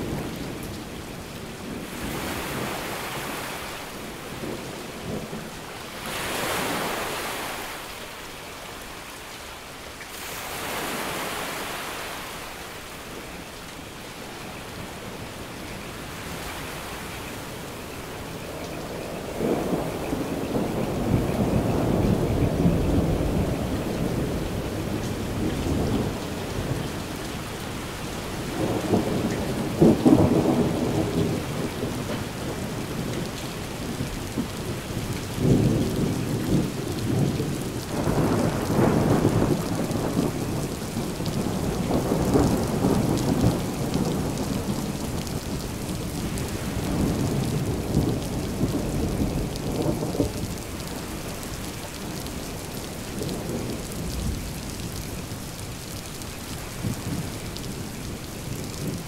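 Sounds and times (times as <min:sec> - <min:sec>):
steady rainfall: 0:00.0 - 0:59.0
thunder rumbling: 0:18.4 - 0:55.4.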